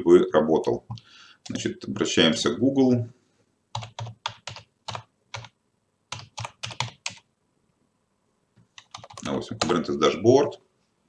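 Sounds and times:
computer keyboard typing: 0:03.7 - 0:07.3, 0:08.7 - 0:09.8.

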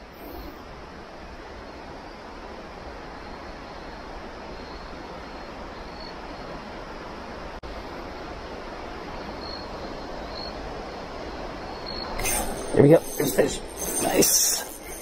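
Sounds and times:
shallow stream rushing: 0:00.0 - 0:15.0.

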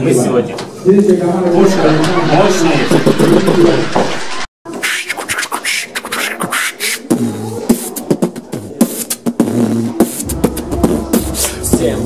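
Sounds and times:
man beatboxing: 0:04.7 - 0:12.0.

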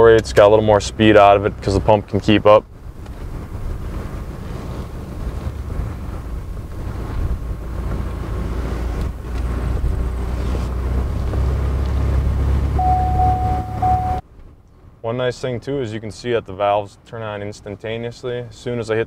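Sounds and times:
truck driving rumble: 0:00.0 - 0:15.1
wind buffeting microphone: 0:00.1 - 0:12.7.

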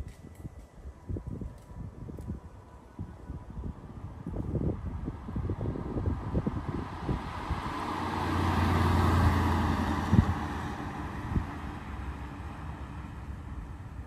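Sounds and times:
car engine driving past: 0:06.5 - 0:13.4.

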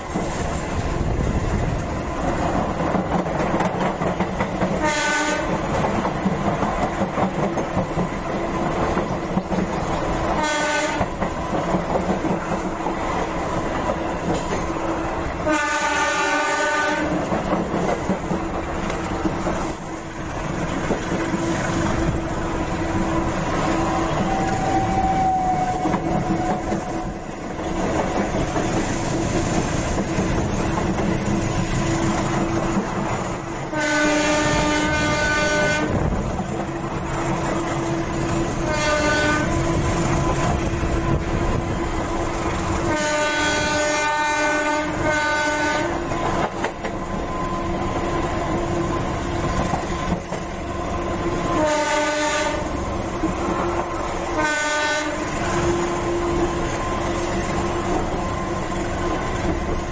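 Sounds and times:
wheel clickety-clack: 0:00.0 - 0:14.9, 0:17.0 - 0:22.3, 0:23.0 - 0:33.4, 0:45.9 - 0:47.3, 0:49.3 - 0:50.7
train running noise: 0:00.0 - 0:59.9
locomotive horn blasts: 0:04.8 - 0:05.6, 0:10.3 - 0:11.2, 0:15.4 - 0:17.2, 0:33.7 - 0:36.0, 0:38.4 - 0:39.8, 0:42.8 - 0:46.1, 0:51.4 - 0:52.8, 0:54.3 - 0:55.5.

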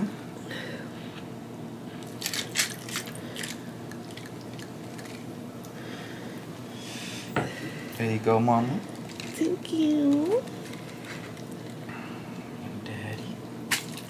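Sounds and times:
drink fizzing: 0:02.0 - 0:05.3.

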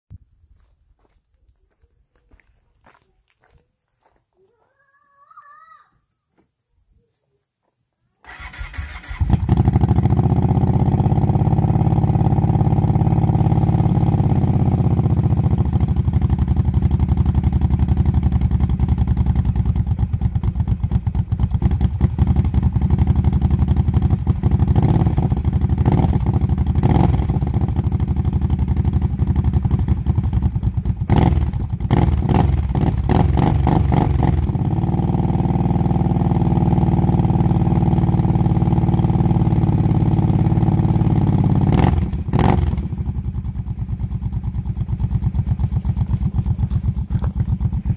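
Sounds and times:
starter cranking engine: 0:08.2 - 0:09.8
engine revving blips: 0:08.2 - 0:16.3, 0:31.1 - 0:43.2
atv engine idling: 0:08.2 - 0:47.9.

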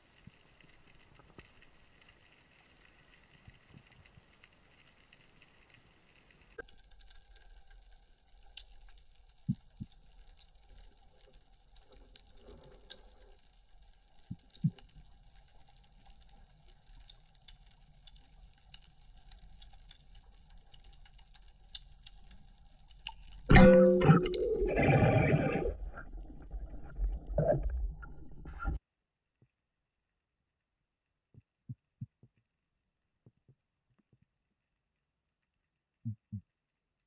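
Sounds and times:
underwater clicks and crackles: 0:00.0 - 0:28.8.

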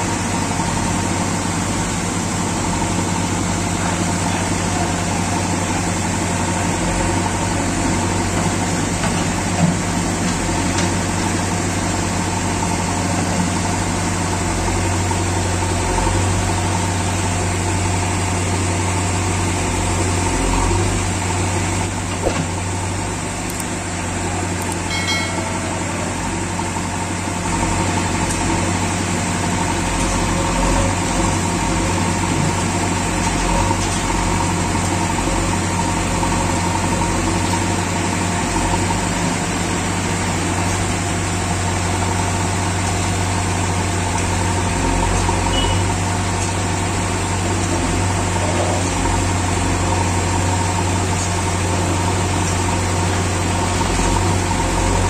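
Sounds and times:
diesel engine droning: 0:00.0 - 0:55.0
backhoe digging sand: 0:27.4 - 0:55.0.

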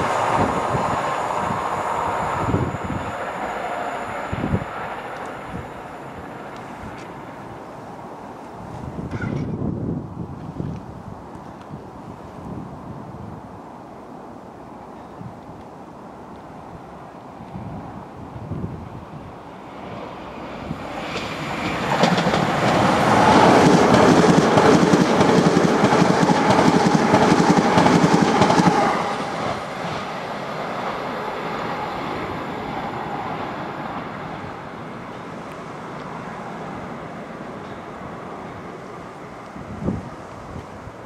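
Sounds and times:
train wheels clattering over rails: 0:20.8 - 0:30.2.

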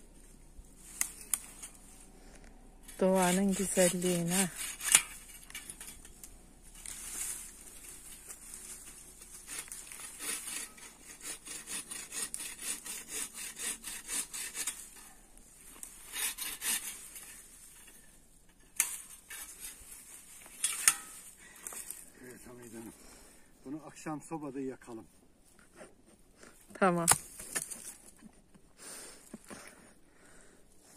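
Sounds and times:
bow saw rasping through branch: 0:02.8 - 0:22.9.

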